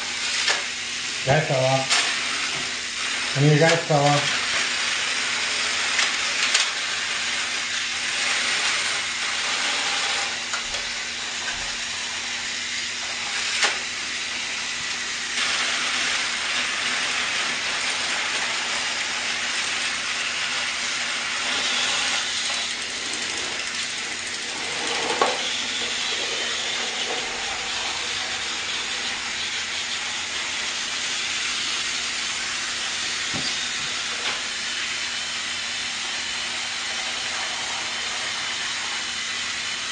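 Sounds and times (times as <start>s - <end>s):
toy train whirring: 0.0s - 39.9s.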